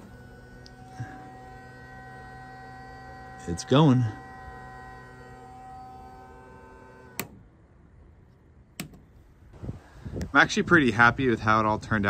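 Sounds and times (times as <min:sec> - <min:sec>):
small pump motor humming: 0:00.0 - 0:07.4
switch clicks: 0:08.8 - 0:09.1.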